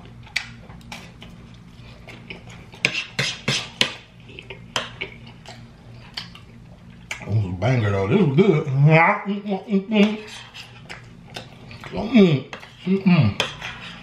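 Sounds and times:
faint low hum: 3.9s - 14.0s.

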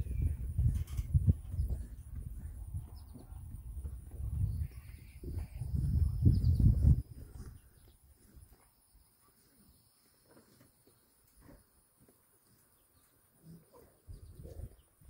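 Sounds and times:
soft rustles and bumps: 0.0s - 4.5s.

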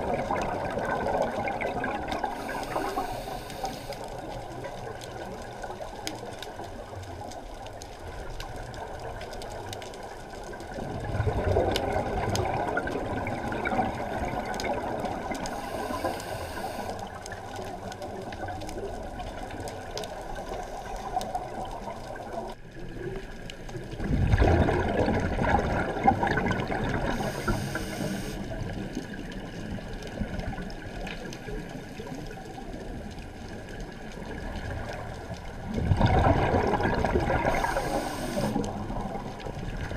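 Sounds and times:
regulator bubbles underwater: 0.0s - 39.9s
faint clicks: 1.8s - 10.9s, 11.6s - 24.0s, 26.4s - 35.6s, 37.0s - 39.9s
steady hiss: 2.2s - 6.9s, 15.2s - 17.6s, 27.0s - 28.8s, 37.4s - 38.8s.

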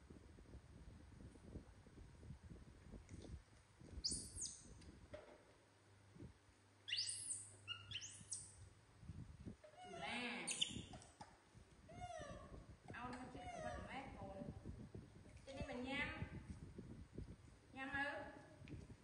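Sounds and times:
baby monkeys squeaking: 4.0s - 4.6s, 6.9s - 8.5s, 9.8s - 10.9s.

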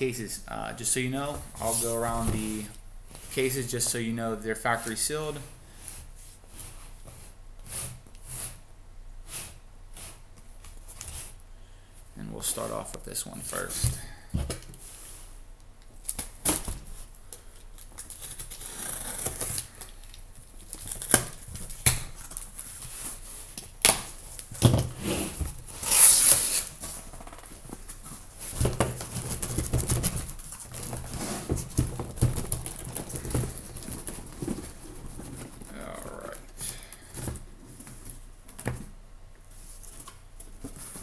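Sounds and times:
packing tape tearing: 17.8s - 22.7s, 25.7s - 27.3s.

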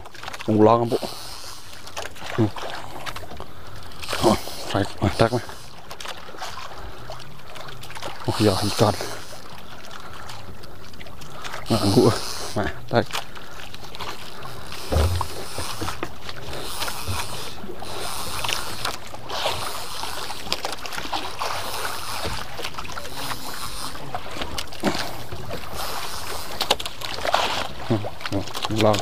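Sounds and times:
sea water splashing: 0.0s - 29.0s
wind: 0.0s - 29.0s
low thump: 14.8s - 15.6s.

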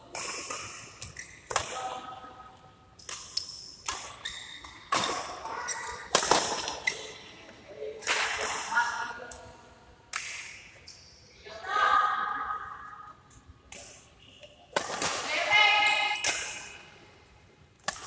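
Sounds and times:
echo in large hall: 0.0s - 18.0s
rackets striking shuttlecock: 0.1s - 1.8s, 3.0s - 7.2s, 16.2s - 16.8s, 17.8s - 18.0s.

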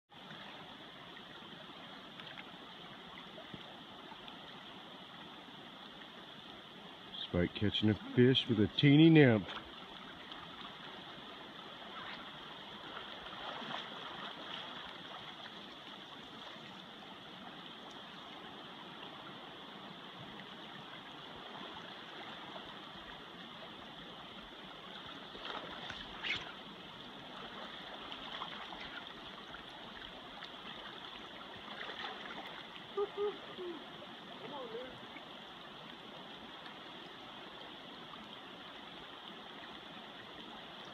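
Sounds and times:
river water rushing over rocks: 0.1s - 40.9s
faint ticks: 17.8s - 18.1s.

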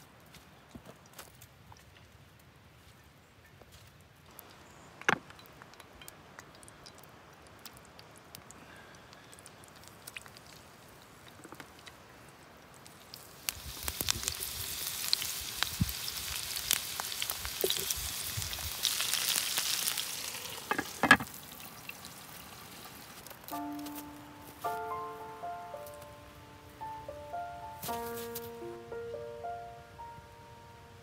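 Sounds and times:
food sizzling in oil: 12.9s - 24.1s.

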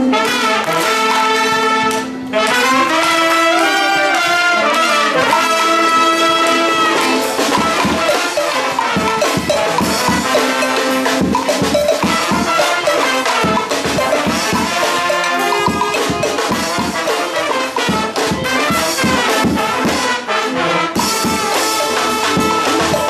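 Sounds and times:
brass chords: 0.0s - 23.0s
bass drum beat: 7.4s - 19.7s.

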